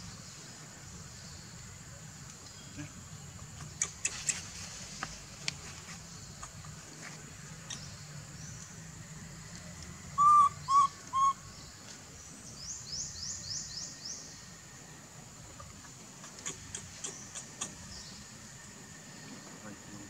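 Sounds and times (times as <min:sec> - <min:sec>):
clear whistled animal notes: 0:10.1 - 0:11.4.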